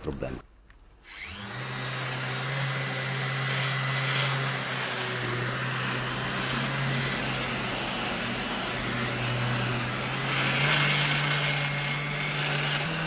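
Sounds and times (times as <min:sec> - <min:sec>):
orbital sander on metal: 0:01.1 - 0:13.0.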